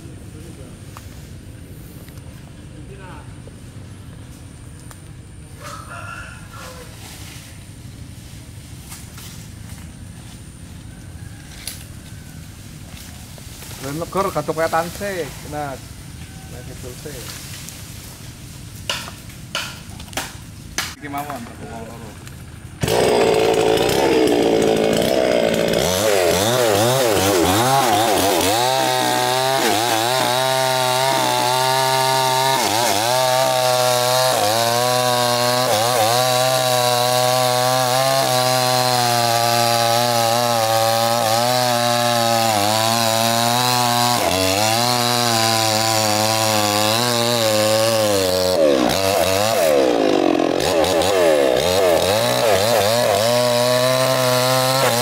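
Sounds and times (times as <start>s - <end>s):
chainsaw cutting wood: 18.9s - 21.4s, 22.2s - 55.0s.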